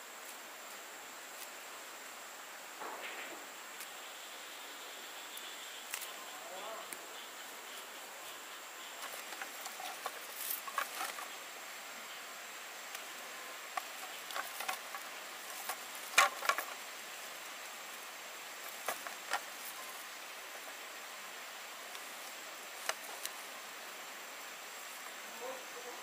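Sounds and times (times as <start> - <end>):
faint hiss: 0.0 - 26.0
sugarcane stalks knocking and rustling: 9.0 - 11.4, 12.8 - 17.0, 18.5 - 20.8, 21.9 - 23.5.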